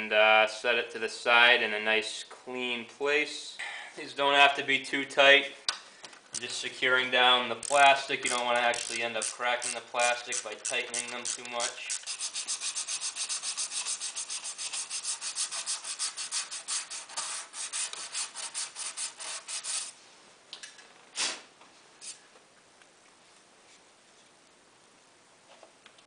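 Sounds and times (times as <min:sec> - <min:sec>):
ratchet wrench clicking: 0:07.6 - 0:12.4.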